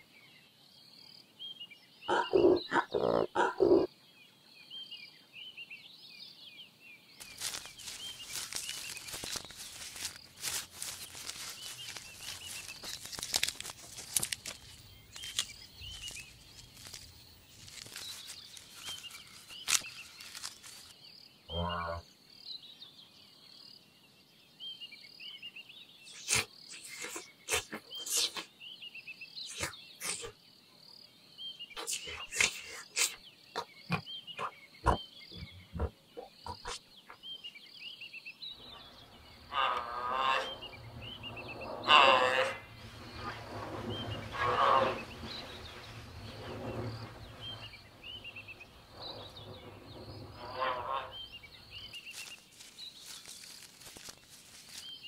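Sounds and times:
giraffe calls: 2.1s - 3.9s, 41.2s - 46.0s.

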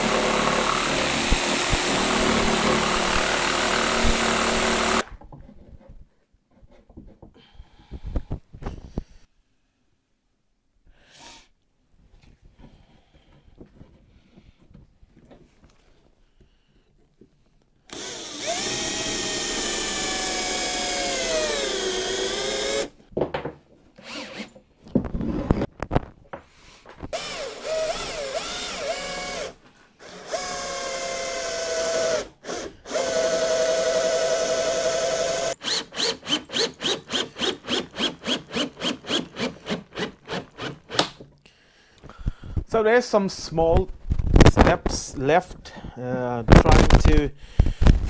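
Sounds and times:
cordless drill motor whine: 0.0s - 5.0s, 17.9s - 22.9s, 24.0s - 24.5s, 27.2s - 41.0s.

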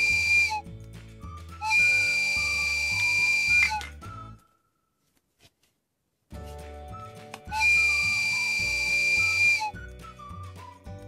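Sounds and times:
whistle blowing long tones: 0.0s - 0.7s, 1.3s - 4.6s, 7.5s - 11.0s
background music: 0.0s - 4.7s, 6.3s - 11.0s.

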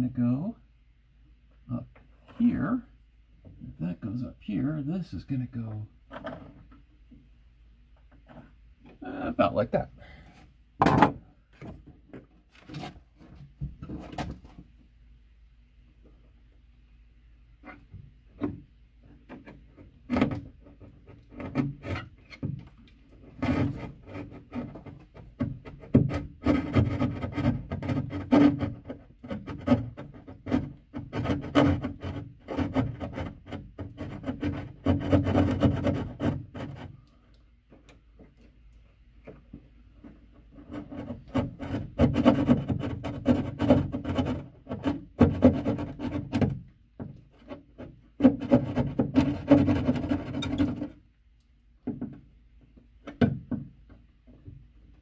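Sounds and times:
hand saw cutting drywall: 23.3s - 36.9s, 40.8s - 46.6s, 48.2s - 50.9s.

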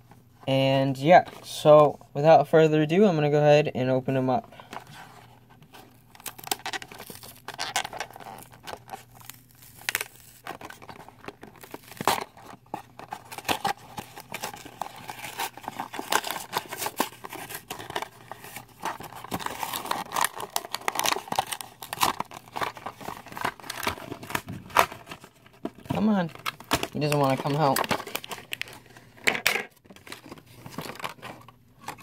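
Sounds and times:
plastic packaging tearing and crinkling: 5.7s - 32.0s.

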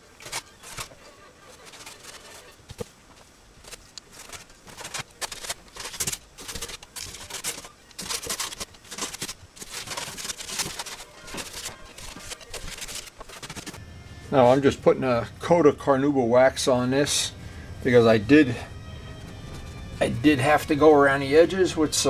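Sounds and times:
paintbrush strokes on plastic: 0.0s - 13.8s.

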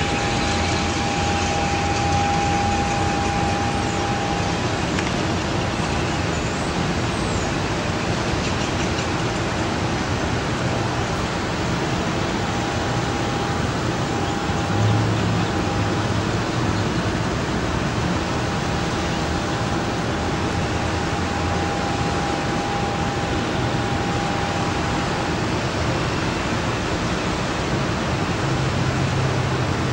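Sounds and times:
faint thin tone: 0.0s - 5.4s
steady rushing noise: 0.0s - 29.9s.

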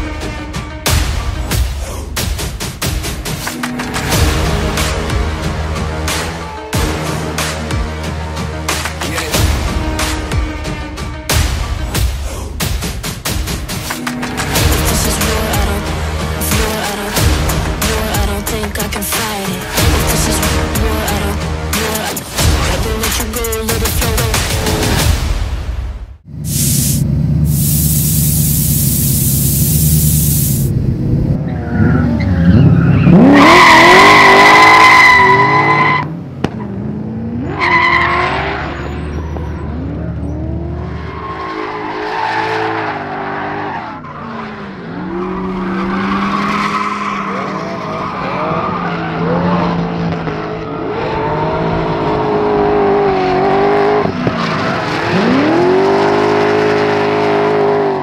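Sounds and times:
car engine revving: 26.3s - 58.0s
loud hiss: 26.5s - 30.7s.

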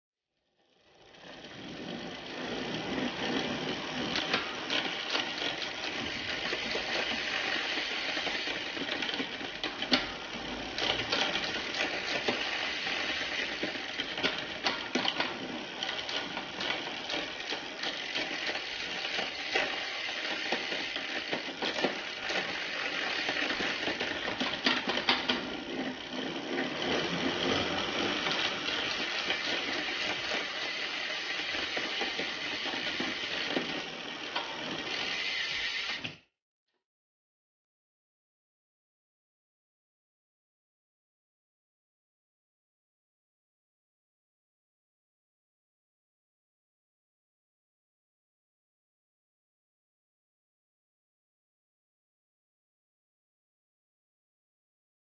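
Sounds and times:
bicycle chain whirring: 0.4s - 36.3s.

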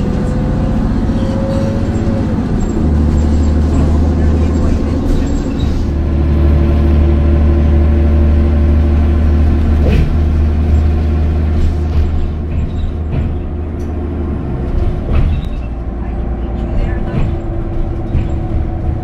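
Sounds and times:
vehicle engine and road rumble: 0.0s - 19.0s.

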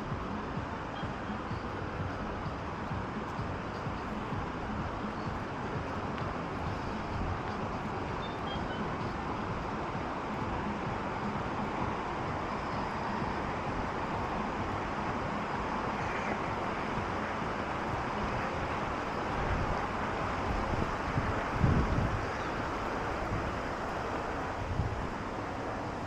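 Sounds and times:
outdoor rumbling hiss: 0.0s - 26.0s.

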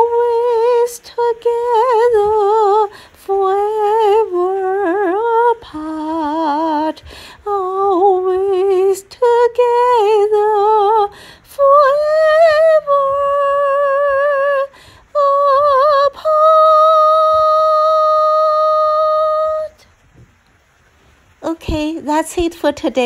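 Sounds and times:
woman singing unaccompanied: 0.0s - 19.9s, 21.4s - 23.0s.

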